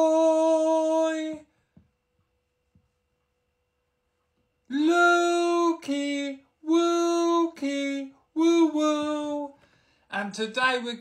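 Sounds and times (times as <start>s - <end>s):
man singing long held notes: 0.0s - 1.5s, 4.7s - 11.0s.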